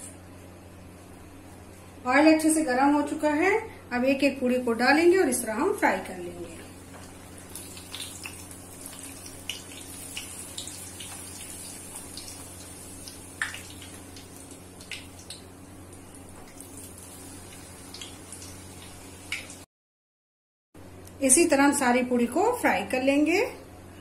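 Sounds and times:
oil sizzling and popping: 6.6s - 19.7s.

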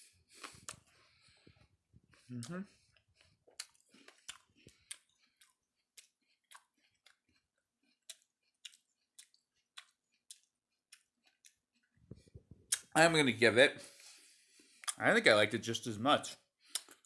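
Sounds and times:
person chewing crisp apple: 0.1s - 12.0s, 16.6s - 17.0s.

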